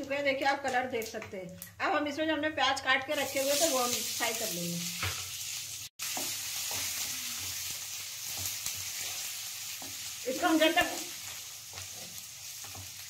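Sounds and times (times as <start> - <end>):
onions sizzling in hot oil: 3.1 - 13.0.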